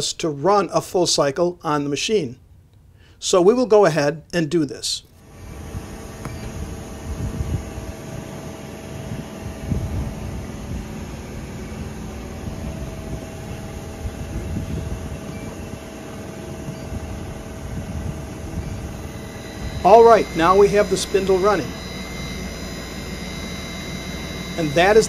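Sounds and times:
spindle motor hum and whine: 0:05.2 - 0:25.0.

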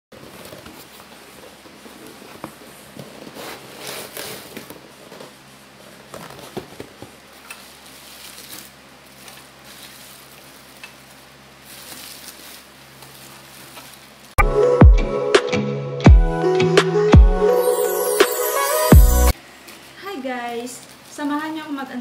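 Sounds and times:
plastic packaging crinkling: 0:00.2 - 0:14.4.

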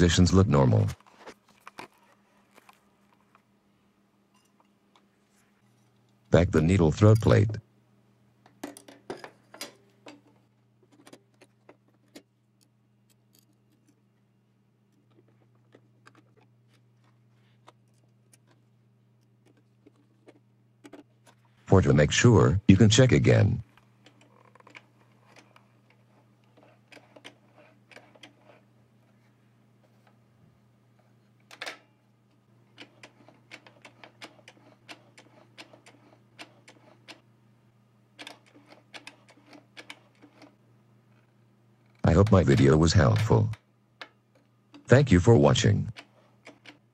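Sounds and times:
steady low hum: 0:00.0 - 0:46.9
sewing machine mechanism clicking: 0:32.7 - 0:37.2, 0:38.2 - 0:40.6, 0:45.9 - 0:46.9.

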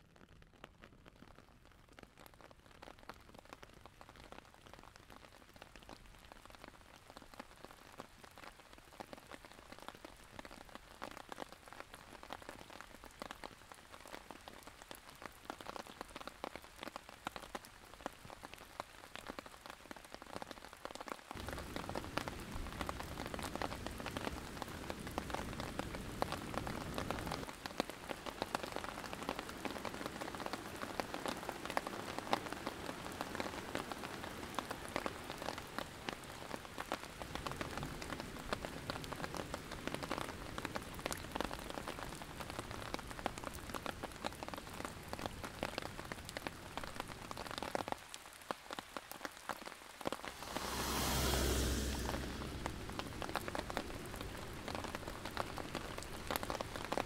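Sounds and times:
rain drops pattering: 0:00.0 - 0:57.0
river rapids rushing: 0:50.2 - 0:54.5.

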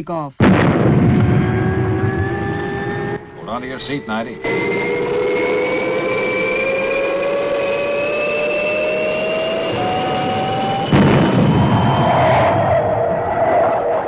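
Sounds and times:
rush of noise: 0:00.4 - 0:14.0
spacecraft engine whine rising: 0:00.8 - 0:14.0.

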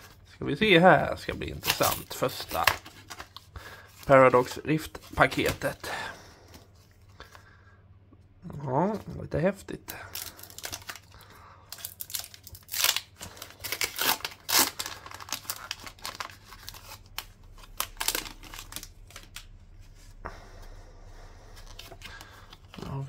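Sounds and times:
foil wrapper tearing and crinkling: 0:01.5 - 0:03.4, 0:10.1 - 0:19.6.

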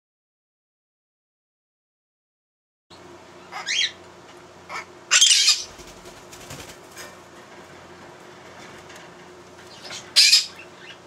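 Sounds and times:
parrot calling: 0:03.4 - 0:04.0, 0:04.7 - 0:05.8, 0:09.7 - 0:11.0
parrot harsh squawk: 0:03.5 - 0:04.0, 0:04.7 - 0:05.8, 0:09.9 - 0:11.0.

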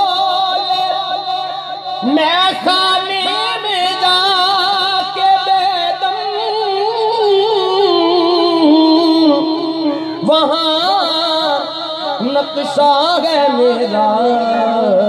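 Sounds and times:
person singing long wavering note: 0:02.0 - 0:12.4.

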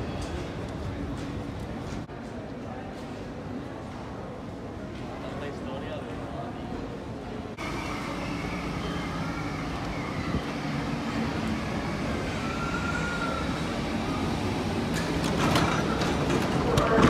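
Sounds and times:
train wheels and motors rumbling: 0:00.0 - 0:05.3, 0:06.0 - 0:17.0
train whining: 0:07.0 - 0:17.0.

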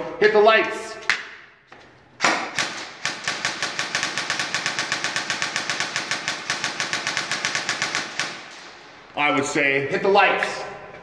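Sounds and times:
airsoft rifle firing rapid shots: 0:02.2 - 0:08.8.

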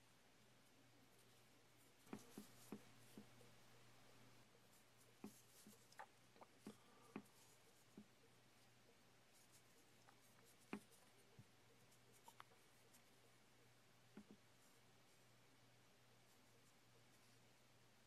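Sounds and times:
fingers tapping clay figure: 0:02.0 - 0:03.5, 0:10.0 - 0:11.1, 0:14.1 - 0:14.5.

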